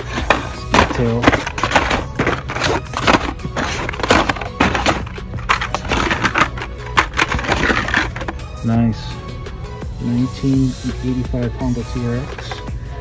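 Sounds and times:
plastic blister cards clattering: 0.0 - 8.4.

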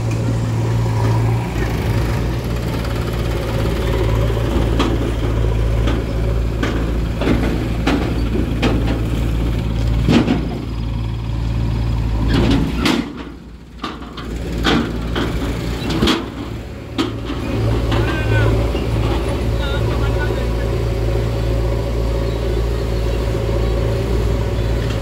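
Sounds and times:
diesel engine running: 0.0 - 25.0
knocks and clatters: 4.2 - 11.0, 12.2 - 19.5.

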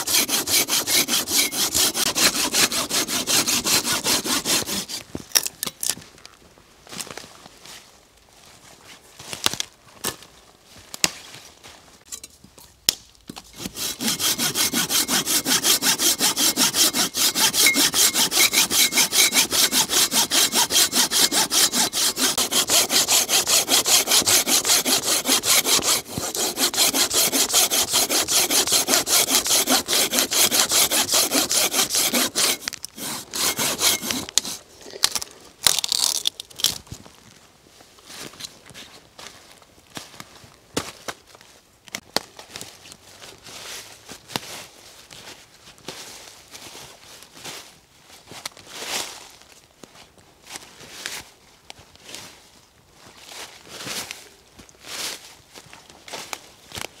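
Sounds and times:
hand saw cutting a branch: 0.0 - 5.1, 13.4 - 35.2
twigs snapping: 35.0 - 36.9.

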